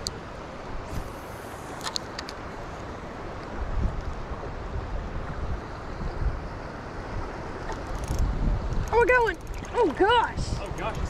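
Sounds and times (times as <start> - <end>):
wind buffeting microphone: 3.6 - 11.0
creek current rushing: 4.3 - 11.0.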